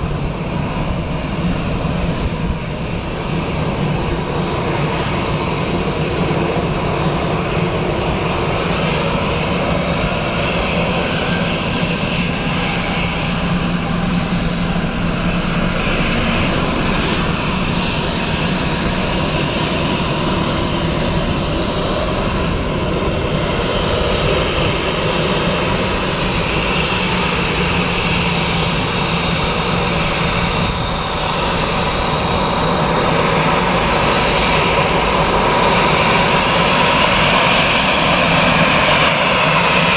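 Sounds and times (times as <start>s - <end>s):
jet engines running: 0.0s - 39.9s.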